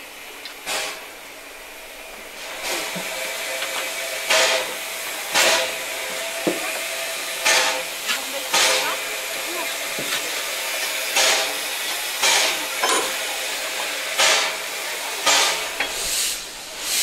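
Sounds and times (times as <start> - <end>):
bursts of escaping steam: 0.0 - 17.0
steam locomotive hissing: 0.0 - 17.0.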